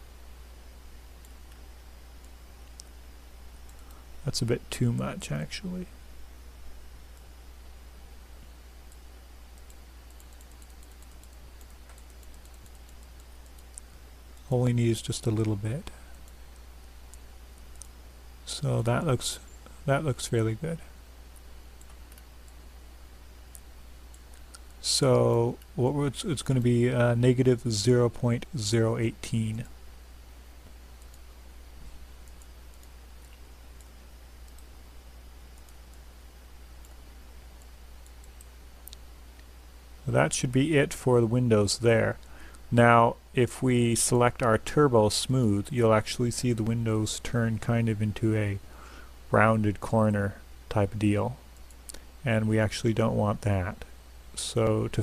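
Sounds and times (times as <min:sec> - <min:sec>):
low electrical hum: 0:00.0 - 0:55.0
computer mouse clicks: 0:03.6 - 0:04.0, 0:08.9 - 0:14.0, 0:21.3 - 0:22.6, 0:30.6 - 0:31.3, 0:32.2 - 0:34.8, 0:35.6 - 0:36.0, 0:36.8 - 0:37.0, 0:37.6 - 0:39.5
mouse clicks: 0:08.9 - 0:13.9, 0:35.6 - 0:36.0
computer keyboard clicks: 0:09.6 - 0:13.8.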